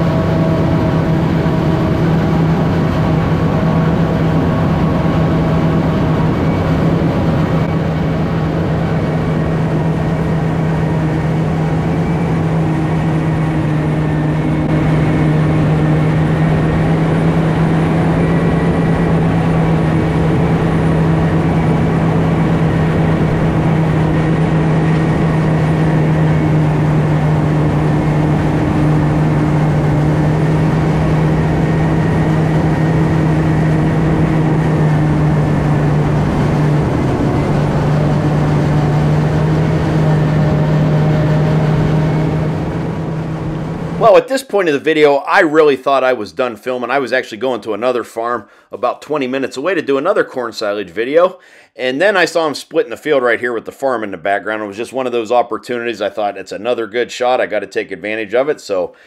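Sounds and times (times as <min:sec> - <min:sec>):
harvester engine hum: 0:00.0 - 0:44.4.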